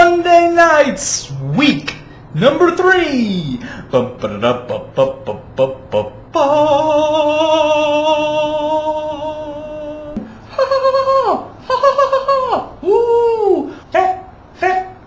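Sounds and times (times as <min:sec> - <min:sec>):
swooping vocal glides: 0:03.2 - 0:15.0
person singing long wavering note: 0:05.0 - 0:10.2.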